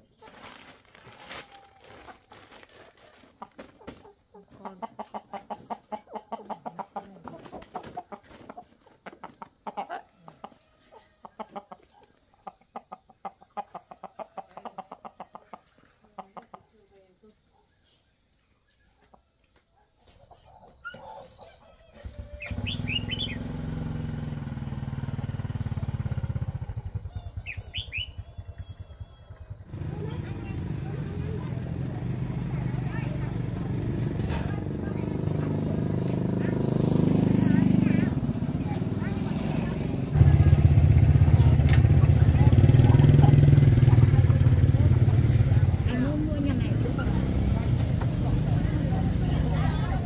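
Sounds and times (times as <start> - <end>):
chickens clucking: 0.0 - 24.2, 25.4 - 28.6, 29.4 - 50.0
bird chirps: 19.9 - 23.5, 27.0 - 30.2, 30.9 - 31.7
small motorbike engine: 21.9 - 50.0.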